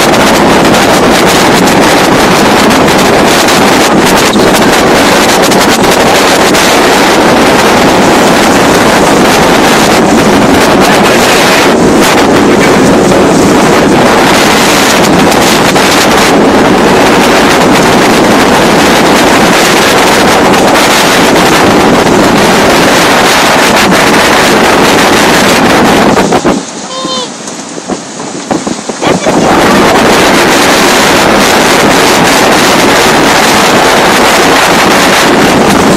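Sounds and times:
water rushing along hulls: 0.0s - 35.9s
wind buffeting microphone: 0.0s - 35.9s.

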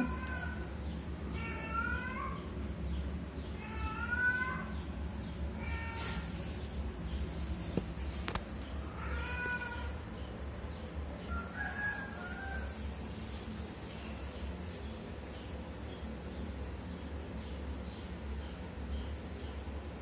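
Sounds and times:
cat meowing: 1.3s - 2.4s, 3.6s - 4.7s, 8.9s - 10.0s.

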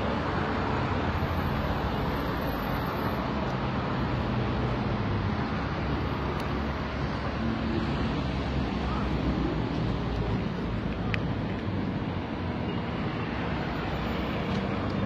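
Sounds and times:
street traffic noise: 0.0s - 15.0s.

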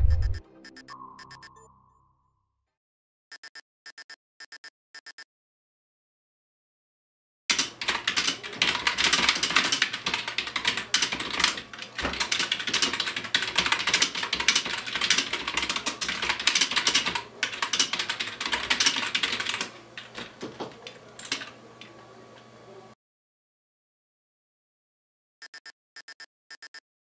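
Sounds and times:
fast typing on keyboard: 7.5s - 21.6s.

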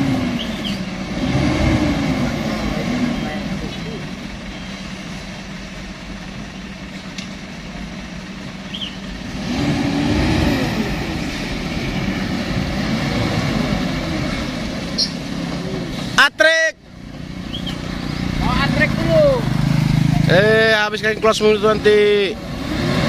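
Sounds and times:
diesel truck engine running: 0.0s - 23.0s
motorcycle passing: 7.6s - 16.2s, 16.8s - 23.0s.

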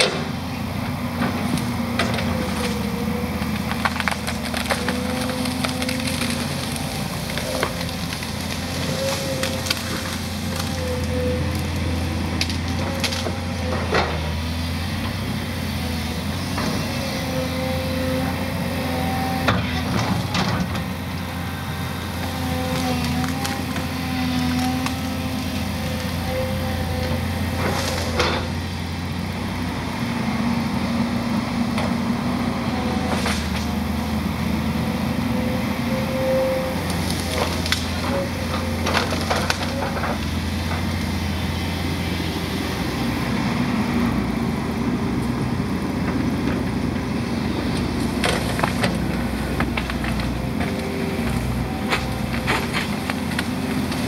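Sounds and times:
excavator diesel engine running: 0.0s - 54.0s
branches cracking and snapping: 1.2s - 28.6s, 32.8s - 34.8s, 36.0s - 41.6s, 47.6s - 54.0s.

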